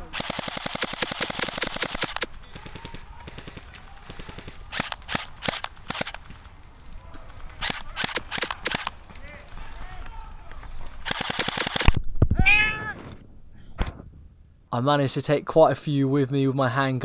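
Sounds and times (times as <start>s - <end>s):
airsoft guns firing: 0.0s - 6.4s, 7.6s - 9.8s, 11.0s - 12.1s.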